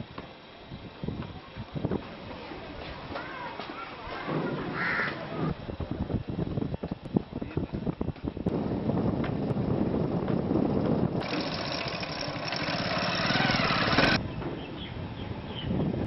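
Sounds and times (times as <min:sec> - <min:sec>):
motorcycle engine rumbling: 0:04.2 - 0:16.0.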